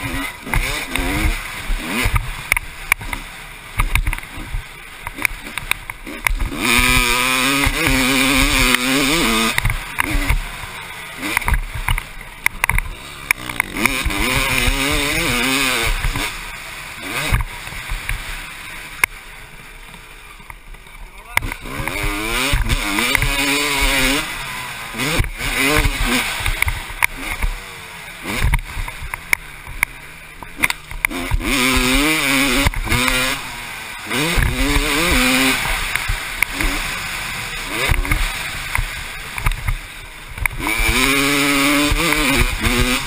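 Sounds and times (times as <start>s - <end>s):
motorcycle engine revving: 0.0s - 43.0s.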